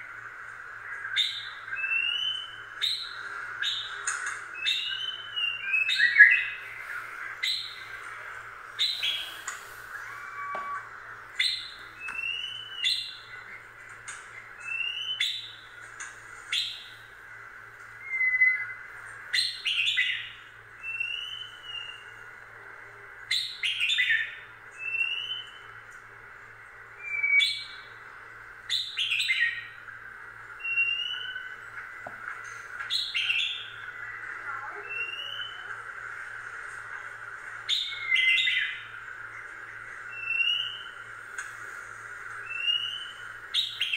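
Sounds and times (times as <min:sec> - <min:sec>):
steady high hiss: 0:00.0 - 0:43.9
bird chip and whistle call: 0:01.0 - 0:06.7, 0:08.8 - 0:13.5, 0:14.6 - 0:15.6, 0:18.0 - 0:22.2, 0:30.6 - 0:31.6, 0:32.9 - 0:35.7, 0:40.1 - 0:41.0, 0:42.4 - 0:43.9.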